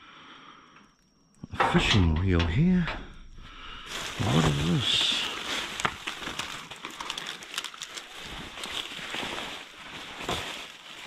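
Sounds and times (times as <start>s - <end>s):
rubbish rustling: 3.8s - 11.0s.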